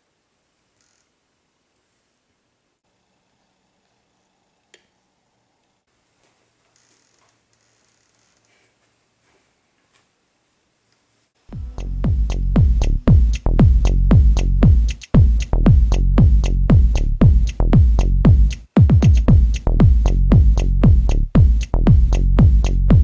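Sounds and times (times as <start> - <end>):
electronic music with fast beat: 11.5 - 23.0.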